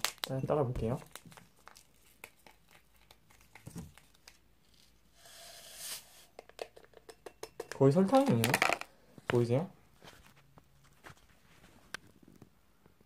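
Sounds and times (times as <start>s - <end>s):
packet crinkling and tearing: 0.0s - 5.0s
powder pouring into a glass: 1.6s - 8.9s.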